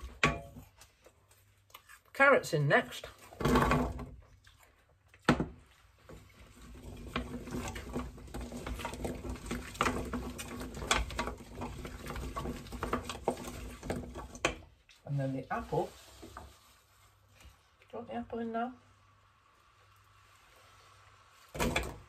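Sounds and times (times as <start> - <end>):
wooden spoon scraping in pan: 5.5 - 17.8, 18.9 - 22.0.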